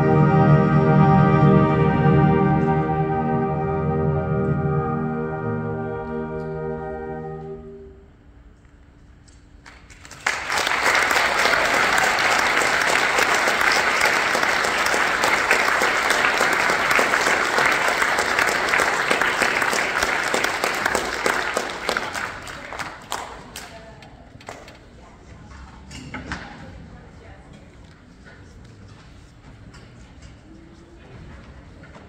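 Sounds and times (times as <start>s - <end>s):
audience applauding: 9.7s - 23.9s.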